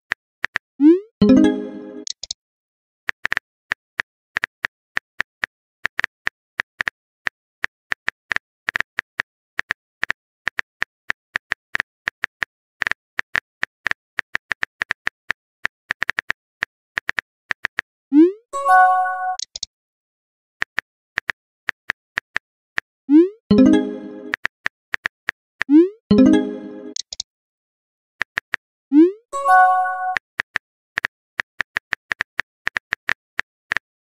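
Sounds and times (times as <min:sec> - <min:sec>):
message sent pop and chime: 0:01.0 - 0:02.2, 0:18.6 - 0:19.4, 0:23.5 - 0:24.4, 0:26.1 - 0:27.0, 0:29.4 - 0:30.2
phone keyboard clicks: 0:26.9 - 0:27.2.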